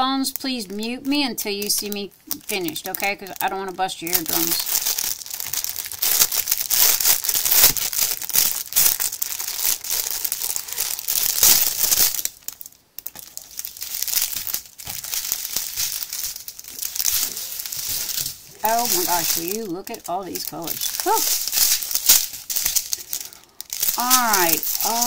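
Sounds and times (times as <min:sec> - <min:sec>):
plastic bag crinkling: 0:00.0 - 0:25.0.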